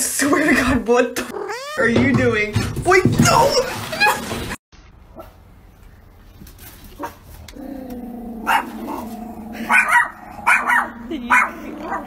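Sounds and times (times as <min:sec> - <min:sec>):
small dog growling: 0:01.2 - 0:01.8, 0:07.5 - 0:12.0
small dogs barking: 0:08.3 - 0:12.0.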